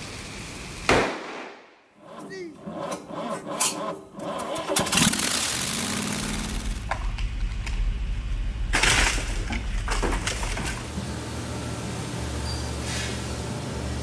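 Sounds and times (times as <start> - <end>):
engine humming: 2.0 - 12.7
loud burst of noise: 4.3 - 9.5.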